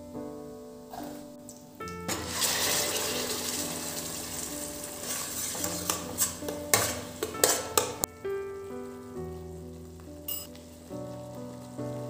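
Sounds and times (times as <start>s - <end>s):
soft background music: 0.0s - 12.0s
puree sizzling in hot oil: 2.0s - 12.0s
metal clinks and scrapes on pan: 5.1s - 8.0s, 10.3s - 10.5s.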